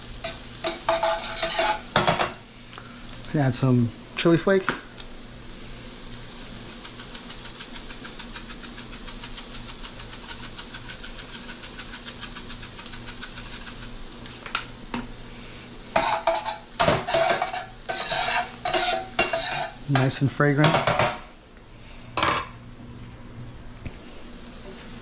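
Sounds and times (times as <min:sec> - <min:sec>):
garlic sizzling in oil: 0:00.0 - 0:20.6, 0:24.0 - 0:25.0
metal tongs scraping pan: 0:00.2 - 0:02.0, 0:16.0 - 0:20.2
jar shaking: 0:06.6 - 0:13.9.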